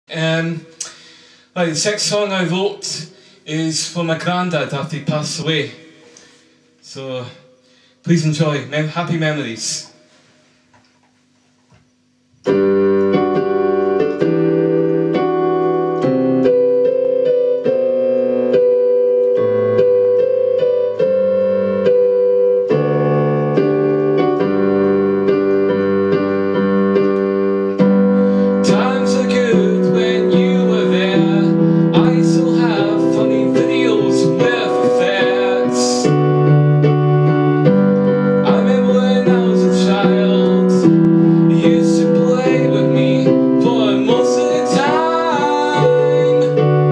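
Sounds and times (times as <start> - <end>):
keyboard playing slow piano chords: 11.9 - 46.9
man singing: 28.6 - 36.2, 38.4 - 46.9.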